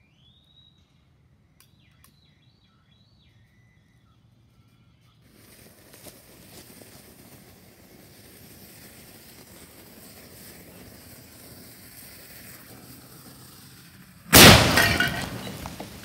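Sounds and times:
explosive blast shattering toilet: 0:14.3 - 0:16.0.

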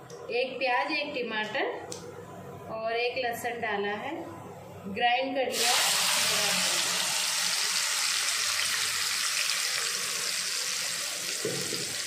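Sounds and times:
paste sizzling in hot oil: 0:05.5 - 0:12.0.

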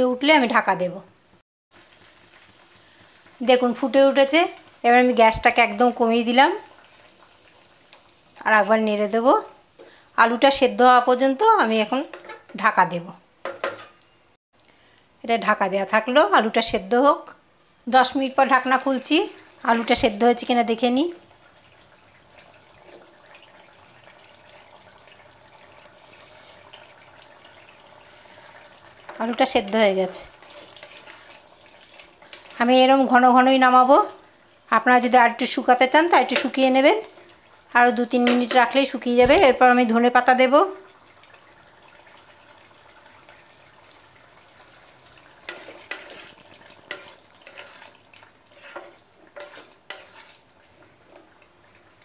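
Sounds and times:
faint steady hiss: 0:00.0 - 0:52.0
gravy sloshing as it simmers: 0:05.6 - 0:10.2, 0:18.6 - 0:35.1, 0:35.9 - 0:52.0
spatula stirring thick curry: 0:28.0 - 0:32.9, 0:43.3 - 0:52.0.

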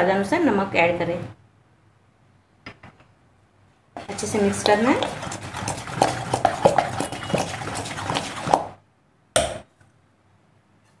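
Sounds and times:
spoon stirring batter in metal bowl: 0:04.0 - 0:08.8.

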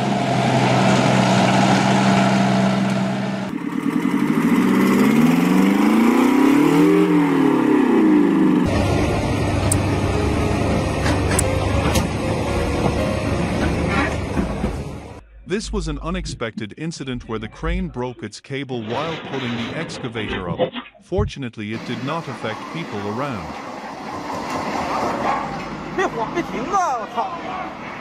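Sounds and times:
truck engine running low: 0:00.0 - 0:15.2
truck engine revving: 0:00.0 - 0:16.2, 0:21.7 - 0:27.1
armoured vehicle engine running: 0:00.0 - 0:16.4, 0:21.2 - 0:26.8.

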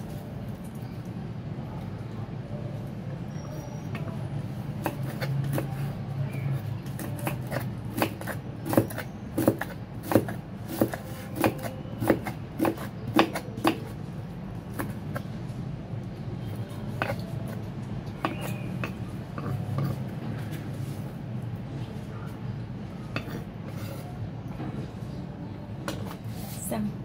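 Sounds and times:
cleaver chopping on wooden block: 0:07.0 - 0:13.9, 0:18.2 - 0:19.9.

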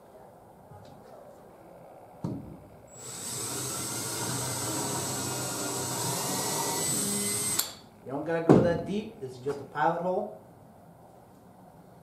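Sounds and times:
cordless drill boring into wood: 0:02.9 - 0:07.8.

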